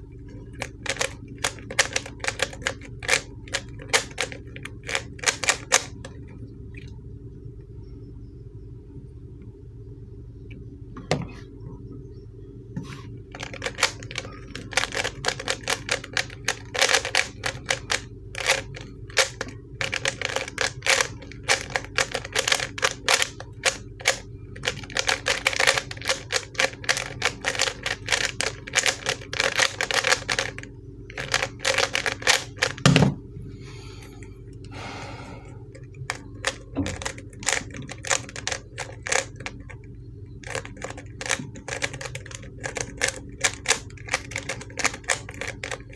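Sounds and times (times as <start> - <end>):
plastic cube clicking and clacking: 0.6 - 5.9, 13.4 - 32.8, 36.1 - 39.6, 40.4 - 45.9.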